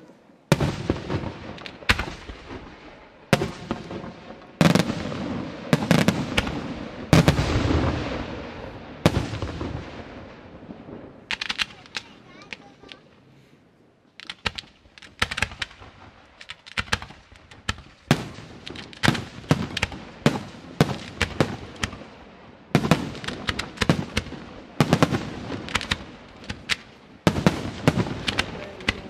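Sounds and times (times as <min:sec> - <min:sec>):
firework shells bursting: 0:11.2 - 0:13.3, 0:14.2 - 0:29.0.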